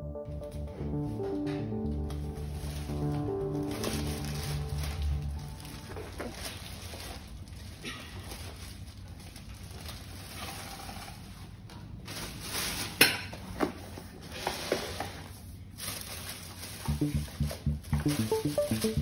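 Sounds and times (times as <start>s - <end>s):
background music with steady beat: 0.0s - 6.0s, 16.9s - 19.0s
plastic bag rustling and crinkling: 2.3s - 17.3s.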